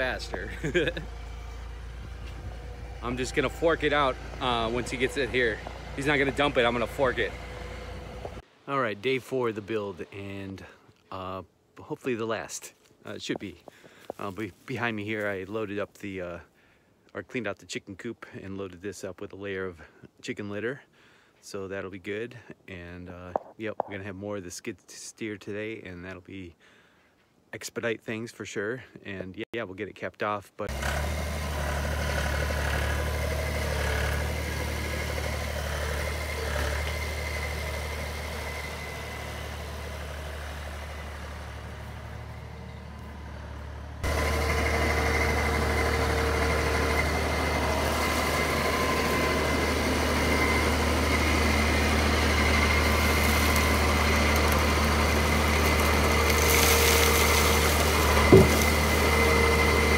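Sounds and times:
loader engine running: 0:00.0 - 0:08.4, 0:30.7 - 0:59.9.

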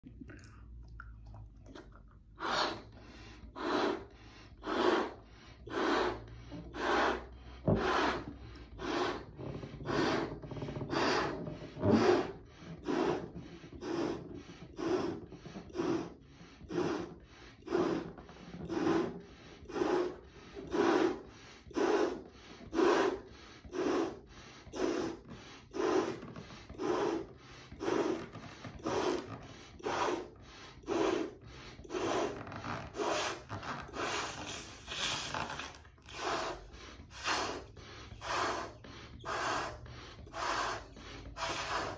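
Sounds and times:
breathy puffs into balloon: 0:02.3 - 0:41.9.

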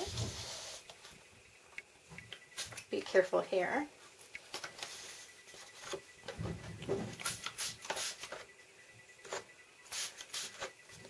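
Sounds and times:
spray bottle spritzes: 0:07.2 - 0:08.4, 0:09.9 - 0:10.7.

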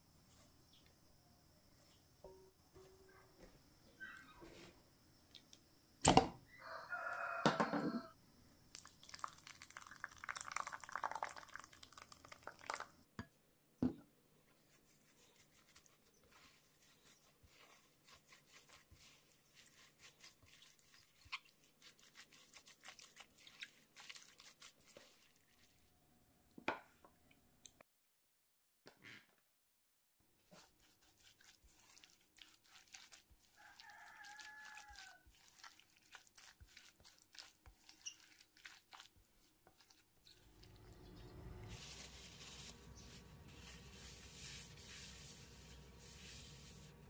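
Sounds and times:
liquid pouring into a glass bowl: 0:08.7 - 0:13.0
spoon stirring thick batter: 0:14.5 - 0:25.9, 0:30.4 - 0:47.0.

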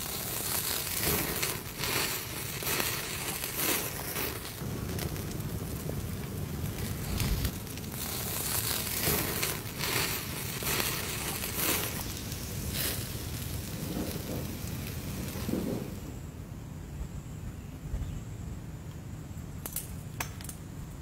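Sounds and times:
meat sizzling over flames: 0:00.0 - 0:16.3
wood fire crackling: 0:00.0 - 0:16.4, 0:19.5 - 0:21.0.

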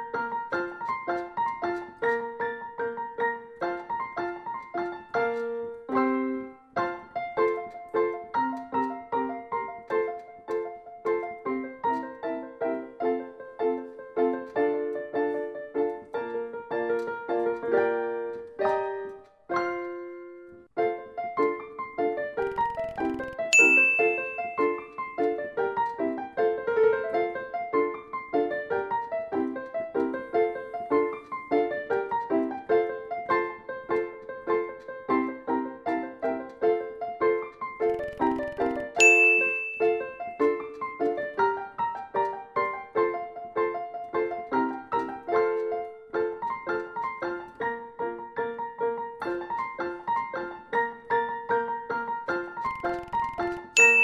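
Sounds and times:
bouncy piano music: 0:00.0 - 0:54.0
bell-like ding: 0:22.8 - 0:24.9, 0:39.0 - 0:40.2, 0:53.8 - 0:54.0.

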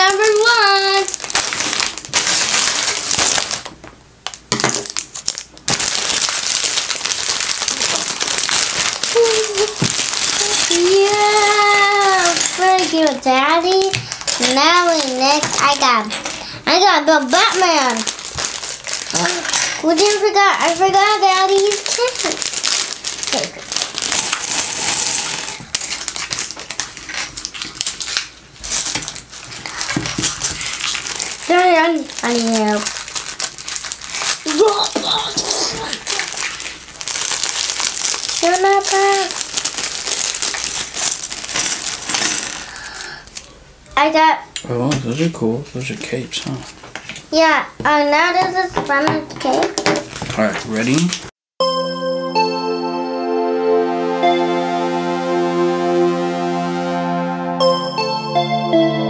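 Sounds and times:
plastic bag crinkling: 0:00.0 - 0:43.5, 0:49.6 - 0:51.3
plastic pieces clattering on wood: 0:48.8 - 0:50.9.

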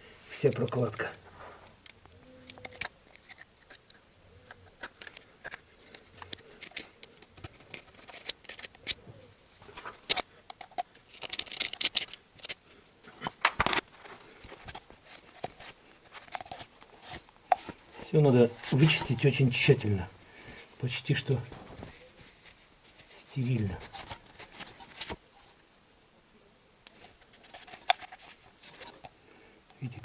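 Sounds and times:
metal awl scraping and clicking: 0:02.4 - 0:09.0, 0:10.1 - 0:12.6, 0:27.3 - 0:29.1.

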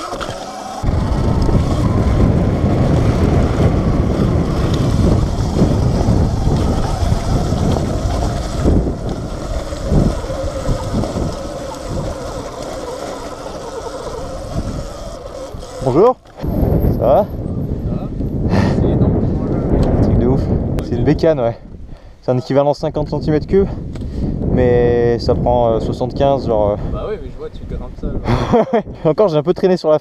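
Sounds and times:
tyre rumble over dirt: 0:00.0 - 0:17.6
wind buffeting microphone: 0:00.0 - 0:22.2, 0:22.8 - 0:29.3.

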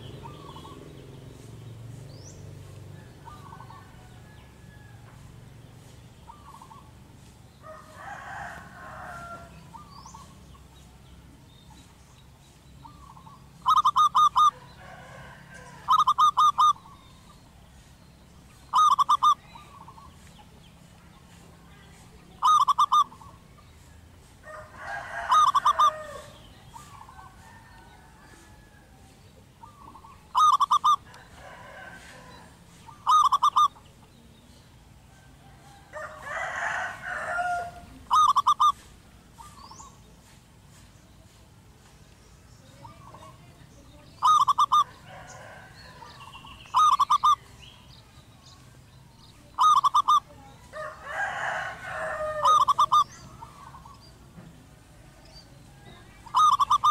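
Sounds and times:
dove cooing: 0:00.0 - 0:00.9, 0:12.8 - 0:17.3, 0:18.6 - 0:20.1, 0:22.3 - 0:23.4, 0:24.5 - 0:29.0, 0:29.6 - 0:34.0, 0:35.6 - 0:39.9, 0:42.8 - 0:47.6, 0:49.4 - 0:54.0, 0:55.4 - 0:56.9.

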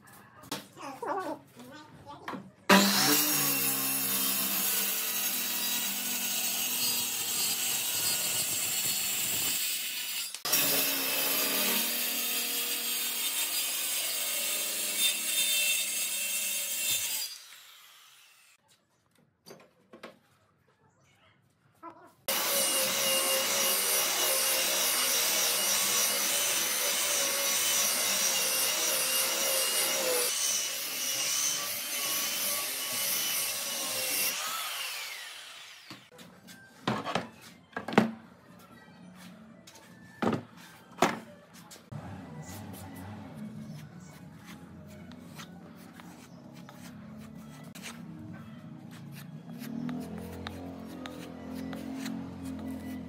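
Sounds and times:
circular saw cutting wood: 0:02.7 - 0:18.6, 0:22.3 - 0:36.1, 0:48.9 - 0:53.0
belt sander on wood: 0:49.1 - 0:53.0.

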